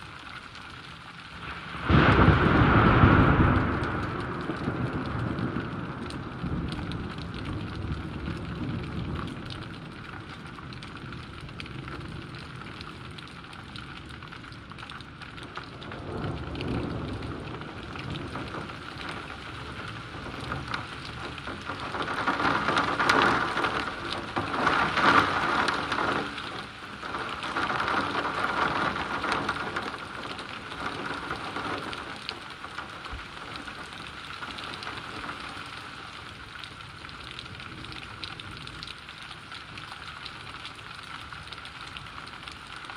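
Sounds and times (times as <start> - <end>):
rain falling and splashing: 0.0 - 42.9
thunder rumbling: 1.5 - 13.2, 15.4 - 33.9.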